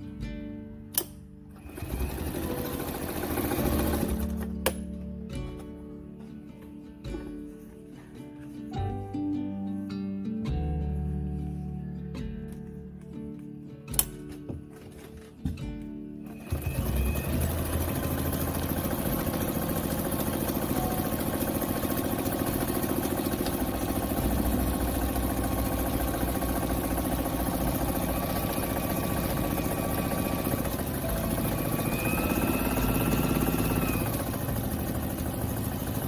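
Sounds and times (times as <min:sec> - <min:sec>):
sewing machine stitching: 0:01.5 - 0:04.8, 0:16.2 - 0:36.0.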